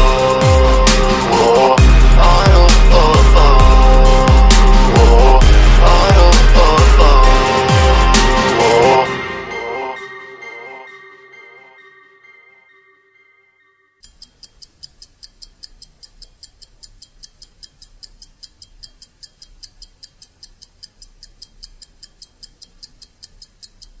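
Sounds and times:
fast even ticking: 0:14.0 - 0:24.0.

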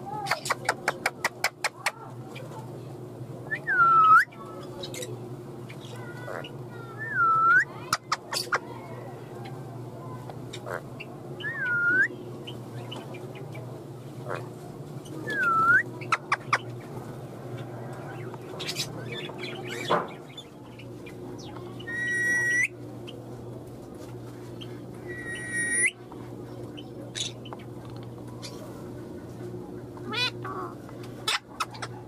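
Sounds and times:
steady low hum: 0:00.0 - 0:32.0
parakeet calling: 0:18.6 - 0:23.2, 0:25.0 - 0:25.9.

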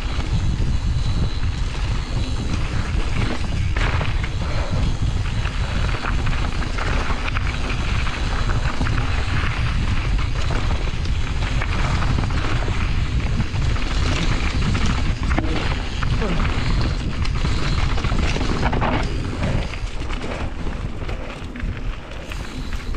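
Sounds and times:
bike knocks and rattles: 0:00.0 - 0:22.9
tyre noise on dirt: 0:00.0 - 0:22.9
wind rumble on microphone: 0:00.0 - 0:22.9.

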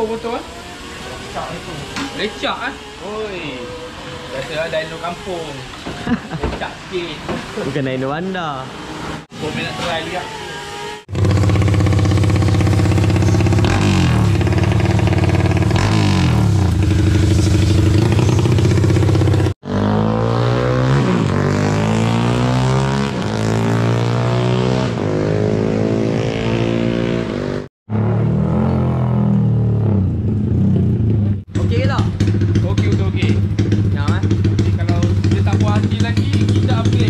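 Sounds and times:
motorcycle engine revving: 0:11.0 - 0:37.0.

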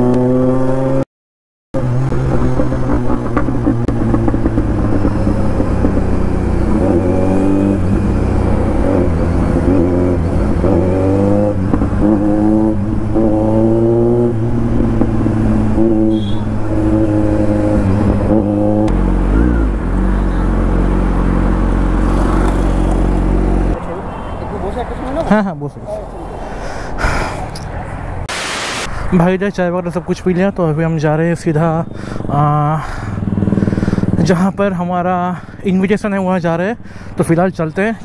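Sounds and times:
motorcycle engine revving: 0:00.0 - 0:01.0, 0:01.8 - 0:23.8, 0:31.6 - 0:34.4.

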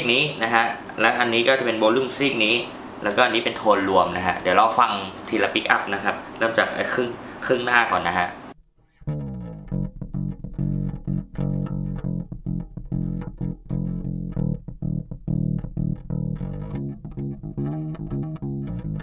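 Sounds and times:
electric bass played fingerstyle: 0:08.7 - 0:19.0.

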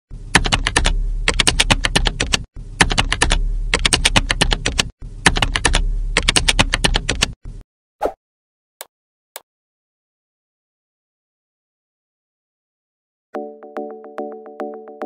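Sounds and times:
keyboard typing clicks: 0:00.4 - 0:07.4.

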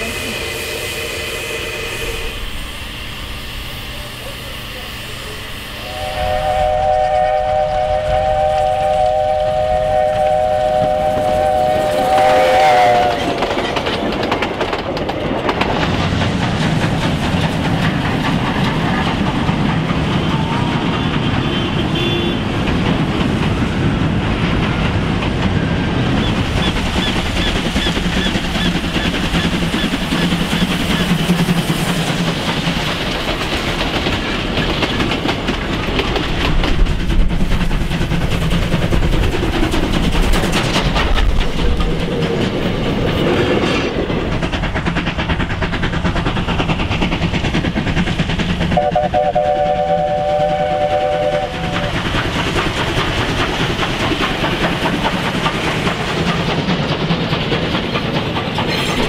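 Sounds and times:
steam locomotive whistle: 0:00.0 - 0:13.6, 0:20.3 - 0:22.4, 0:48.8 - 0:52.0
train running past: 0:00.0 - 0:59.0.

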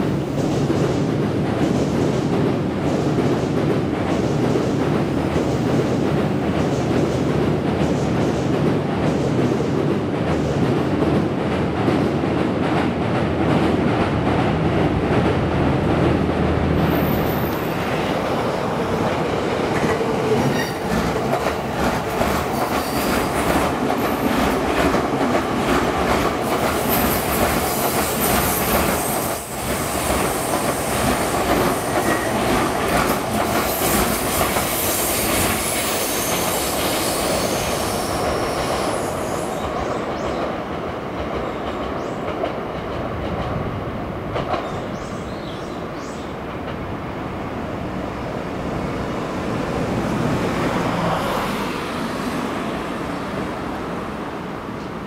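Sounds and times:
train rumbling on steel bridge: 0:00.0 - 0:55.0.

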